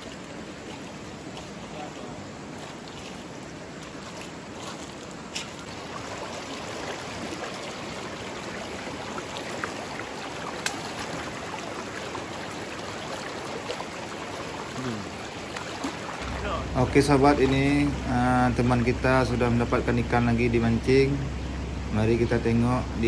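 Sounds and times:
river water rushing: 0:00.0 - 0:23.0.

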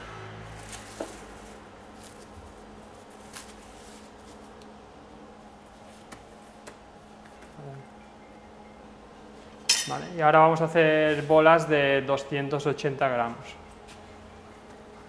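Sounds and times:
steady low hum: 0:00.0 - 0:15.0
dough pulled off plastic film: 0:00.5 - 0:04.6.

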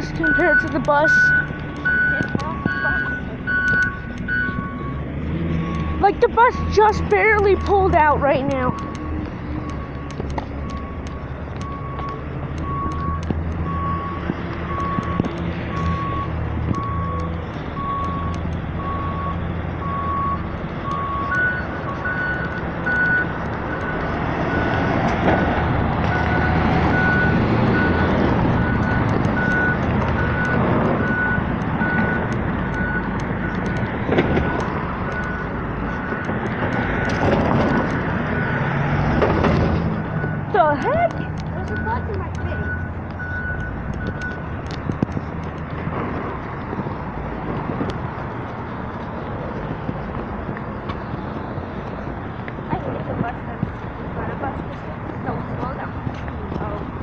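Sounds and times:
reversing alarm beeping: 0:00.0 - 0:24.9, 0:26.0 - 0:38.8, 0:40.0 - 0:44.6
bus engine running: 0:00.0 - 0:57.0.

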